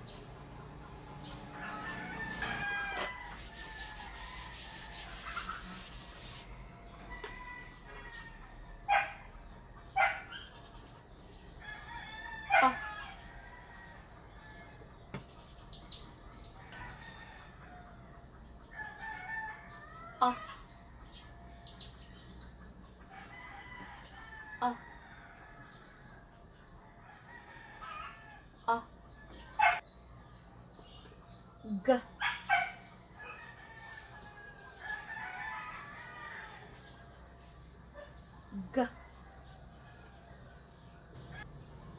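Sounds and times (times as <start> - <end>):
roosters crowing: 0.0 - 9.4, 11.5 - 15.0, 16.5 - 20.7, 22.9 - 26.3, 26.9 - 29.8, 32.2 - 37.9, 38.9 - 41.7.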